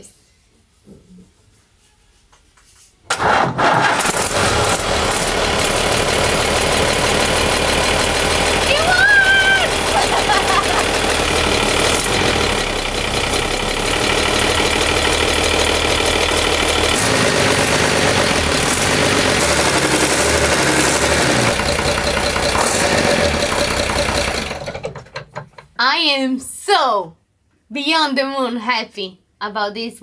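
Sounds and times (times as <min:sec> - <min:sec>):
diesel engine clatter: 0:03.2 - 0:25.8.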